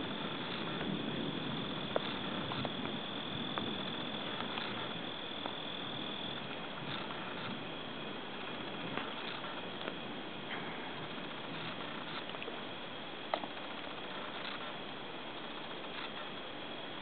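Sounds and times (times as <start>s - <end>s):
crickets trilling: 0.0s - 17.0s
low background hiss: 0.0s - 17.0s
thunder rumble: 0.0s - 17.0s
faint clicks: 13.3s - 14.8s, 15.5s - 16.4s.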